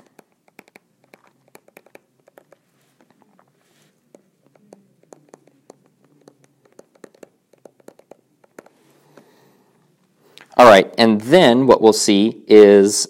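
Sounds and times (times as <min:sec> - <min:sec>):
stylus tapping on touchscreen: 0:00.0 - 0:09.4.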